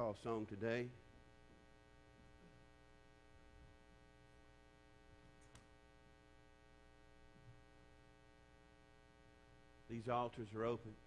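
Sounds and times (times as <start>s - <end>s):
electrical mains hum: 0.0s - 11.0s
faint click: 5.4s - 5.8s.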